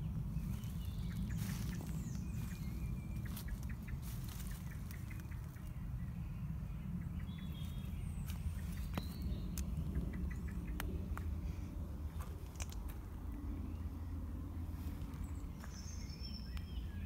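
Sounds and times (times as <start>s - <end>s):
birds whistling calls: 0.0s - 10.9s
steady low rumble: 0.0s - 17.0s.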